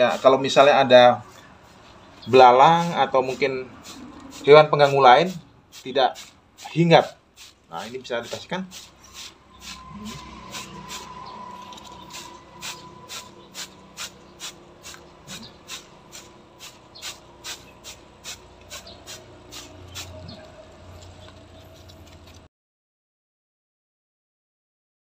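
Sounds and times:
spray bottle hissing: 2.8 - 11.2, 11.8 - 20.4.

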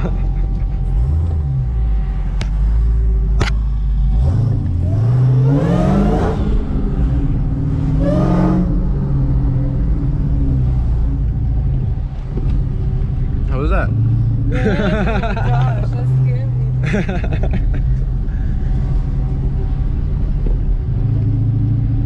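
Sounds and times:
car engine revving hard: 4.0 - 9.5.

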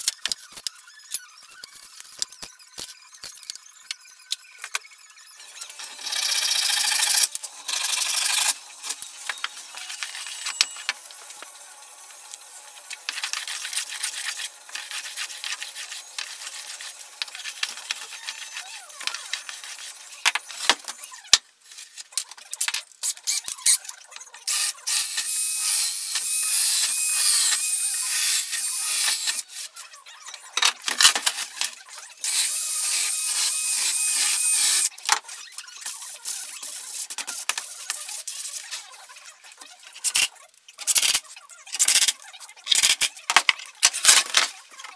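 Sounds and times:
hand saw cutting wood: 12.9 - 20.4
cordless drill whining: 32.2 - 34.9.

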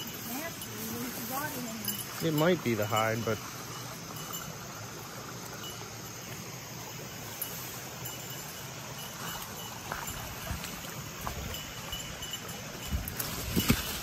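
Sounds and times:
creek running over rocks: 0.0 - 14.0
insects trilling: 0.0 - 14.0
brush rustling and clicking: 12.9 - 14.0.

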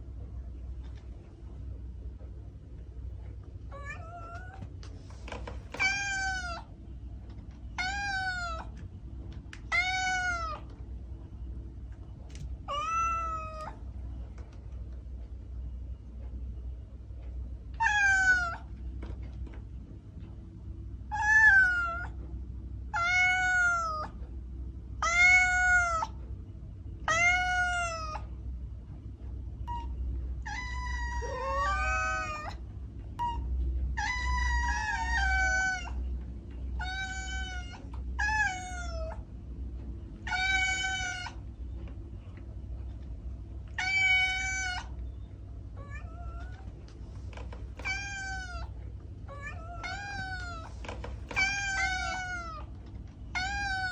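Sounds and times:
steady low hum: 0.0 - 53.9
cat meowing: 3.7 - 4.7, 5.8 - 6.7, 7.8 - 8.8, 9.6 - 10.7, 12.6 - 13.8, 17.8 - 18.7, 21.1 - 22.2, 22.9 - 24.2, 25.0 - 26.2, 27.1 - 28.3, 29.7 - 32.6, 33.2 - 36.0, 36.8 - 39.2, 40.2 - 41.4, 43.7 - 45.0, 45.8 - 46.7, 47.8 - 52.7, 53.3 - 53.9.

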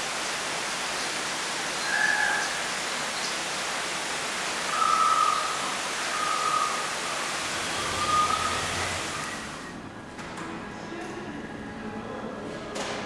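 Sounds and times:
rushing water hiss: 0.0 - 9.8.

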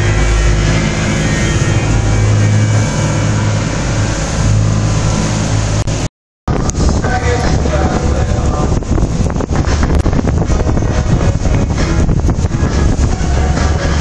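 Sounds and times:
boat engine droning: 0.0 - 14.0
breaking sea waves: 0.0 - 14.0
wind: 0.0 - 14.0.

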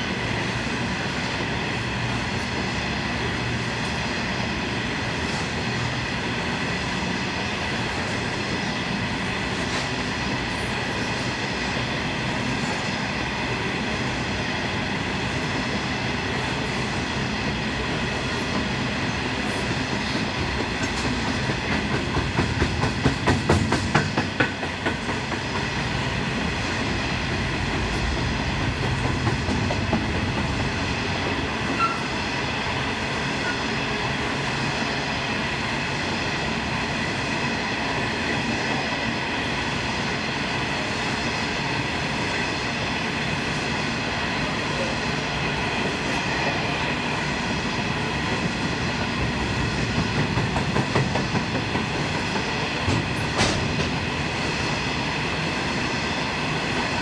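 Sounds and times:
train wheels clattering over rails: 0.1 - 39.1, 39.8 - 57.0.

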